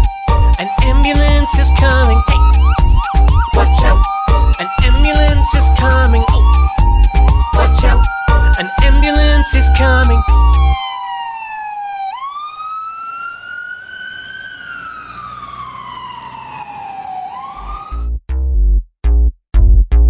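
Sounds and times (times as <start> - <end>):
song beat: 0.0 - 10.8
siren wailing: 0.0 - 18.1.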